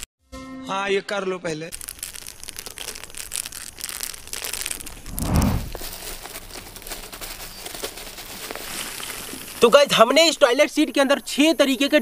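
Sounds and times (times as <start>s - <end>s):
low rumble: 5.0s - 5.8s.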